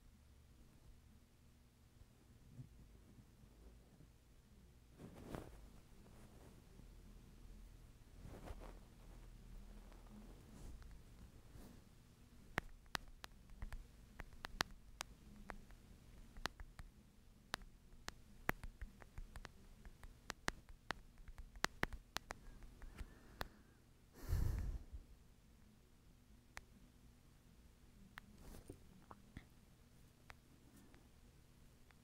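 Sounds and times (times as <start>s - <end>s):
light sharp clicks and taps: 9.8s - 11.7s, 12.5s - 23.6s, 28.1s - 31.2s
breath-like rush of air: 24.2s - 25.0s.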